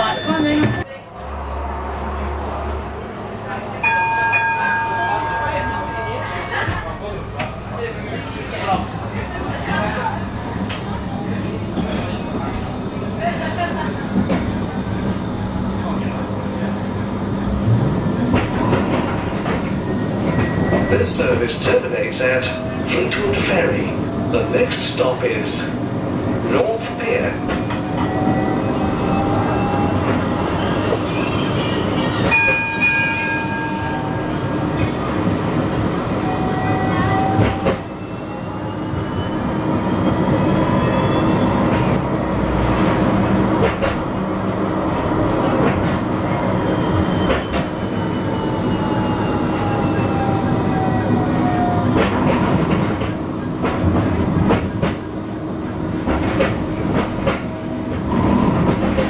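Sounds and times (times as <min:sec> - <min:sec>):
tram motors whining: 0:00.0 - 0:59.0.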